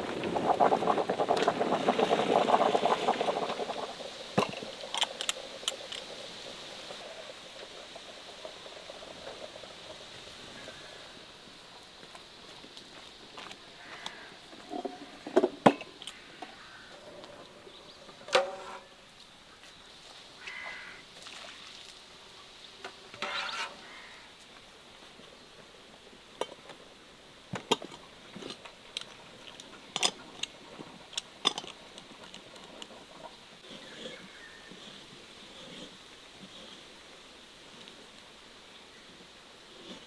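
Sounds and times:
glass and metal lids clicking: 0:31.4 - 0:31.8.

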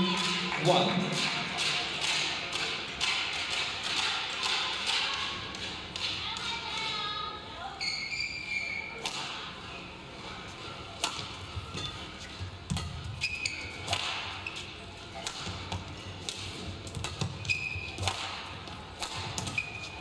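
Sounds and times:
shoes squeaking on court: 0:07.8 - 0:09.0, 0:11.4 - 0:15.2, 0:15.9 - 0:18.3, 0:19.2 - 0:20.0
rackets striking shuttlecock: 0:11.0 - 0:20.0.

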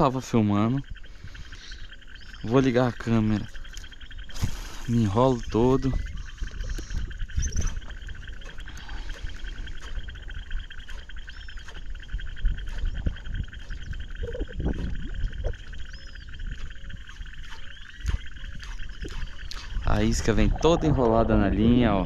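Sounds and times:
chorus of frogs trilling: 0:00.0 - 0:22.0
wind rumbling on microphone: 0:00.0 - 0:22.0.

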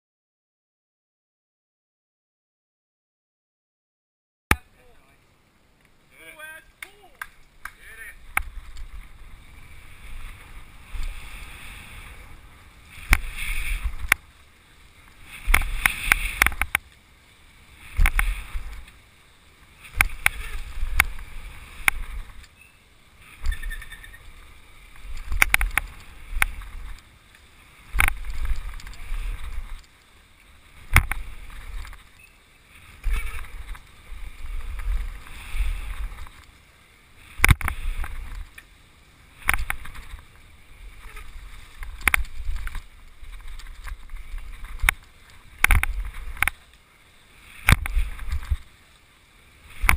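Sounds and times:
bike clicks and rattles: 0:08.3 - 0:17.1, 0:17.8 - 0:38.8, 0:39.4 - 0:46.9, 0:47.5 - 0:49.1.

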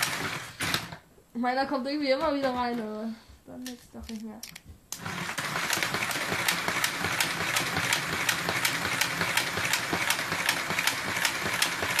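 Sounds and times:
slot car motor whirring: 0:00.0 - 0:00.9, 0:05.0 - 0:12.0.

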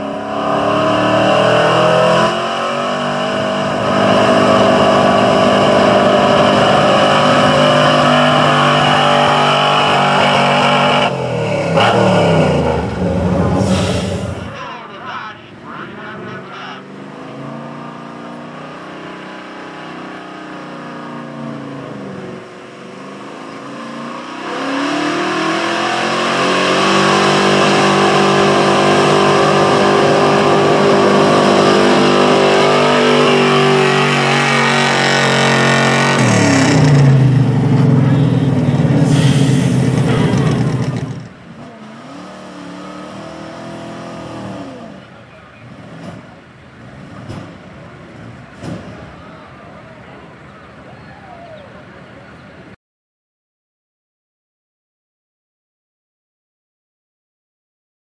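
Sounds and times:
truck engine revving at full throttle: 0:00.0 - 0:49.5
loud hiss: 0:13.6 - 0:14.6, 0:39.0 - 0:40.1.

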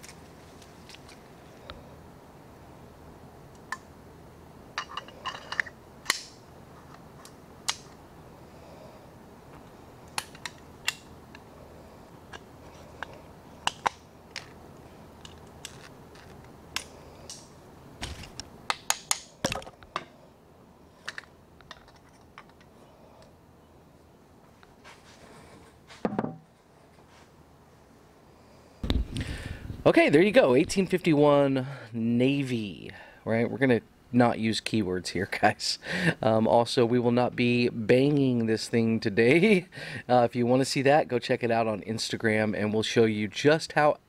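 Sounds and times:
dull knocks on bench: 0:26.0 - 0:26.4.

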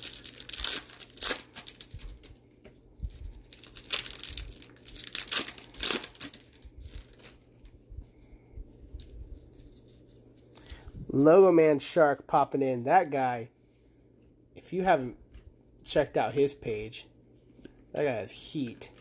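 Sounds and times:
foil wrappers crinkling and tearing: 0:00.0 - 0:07.8.

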